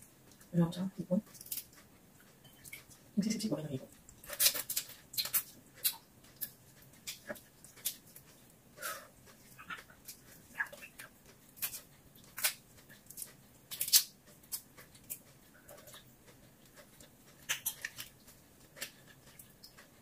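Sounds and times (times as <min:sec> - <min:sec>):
shrimp shells crackling: 0:01.3 - 0:01.7
wet mouth clicks: 0:17.4 - 0:18.0.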